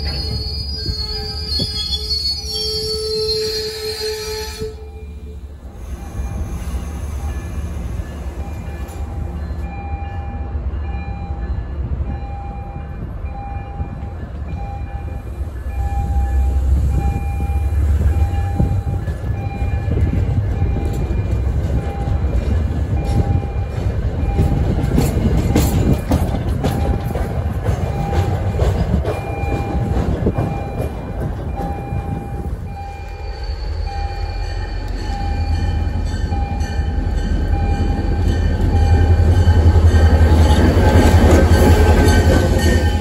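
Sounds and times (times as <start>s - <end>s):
train rumbling on rails: 0.0s - 43.0s
bell ringing steadily: 31.5s - 40.4s.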